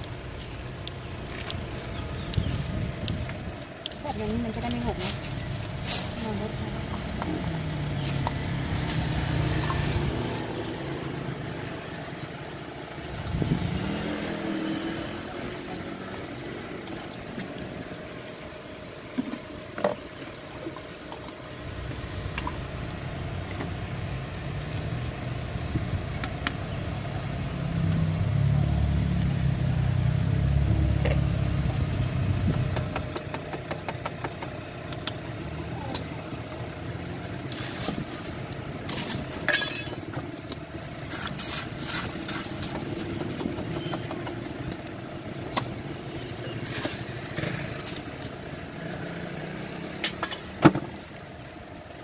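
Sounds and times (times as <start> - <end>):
vehicle engines running: 0.0 - 52.0.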